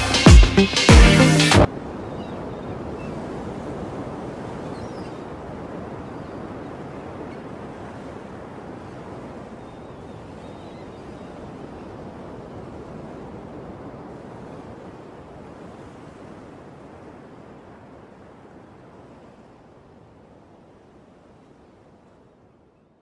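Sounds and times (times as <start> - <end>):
electronic music: 0.0 - 1.7
ocean surf on a shore: 0.0 - 22.8.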